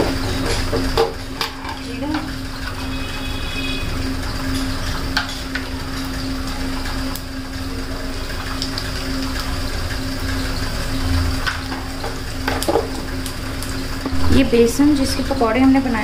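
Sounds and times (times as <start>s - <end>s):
seeds sizzling in hot oil: 0.0s - 16.0s
low hum: 14.1s - 16.0s.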